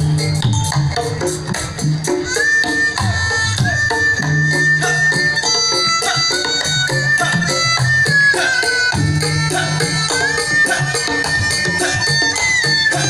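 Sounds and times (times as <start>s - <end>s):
shawm melody: 0.0s - 13.0s.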